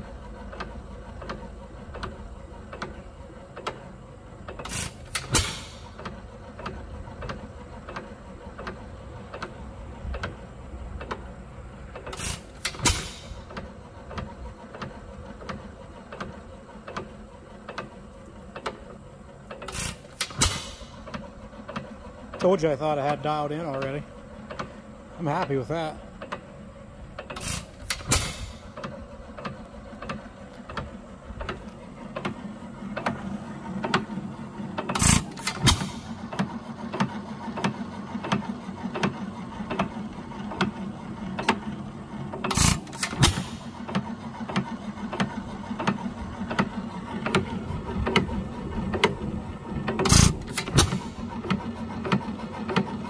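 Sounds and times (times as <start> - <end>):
light mechanical ticking: 0.0 - 53.0
engine firing loud bangs: 4.6 - 6.0, 12.1 - 13.6, 19.7 - 21.1, 27.3 - 28.8, 34.9 - 37.7, 42.4 - 44.0, 49.9 - 51.5.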